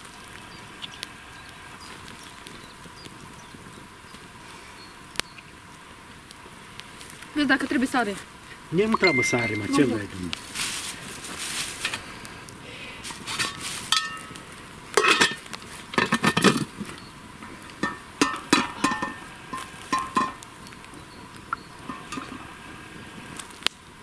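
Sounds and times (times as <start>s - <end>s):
metal pot and lid clattering: 15.0s - 15.4s, 17.8s - 20.4s, 21.9s - 22.4s.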